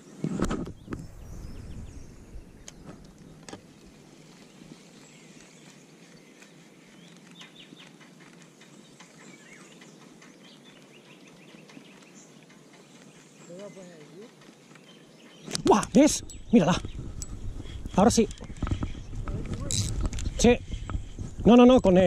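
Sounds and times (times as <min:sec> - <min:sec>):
small birds chirping: 0:00.0 - 0:22.0
spinning reel winding: 0:19.7 - 0:19.9.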